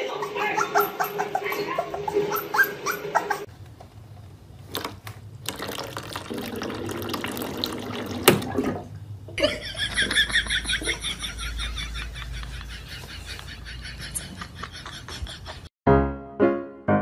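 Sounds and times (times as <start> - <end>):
puppy whimpering: 0.0 - 3.5
water running from a tap: 5.5 - 8.8.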